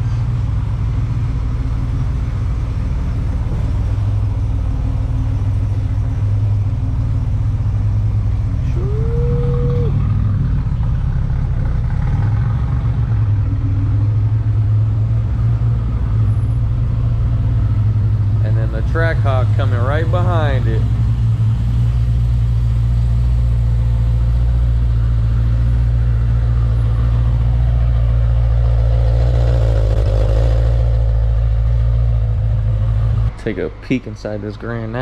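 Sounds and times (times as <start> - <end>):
car engine running at low speed: 0.0 - 35.0.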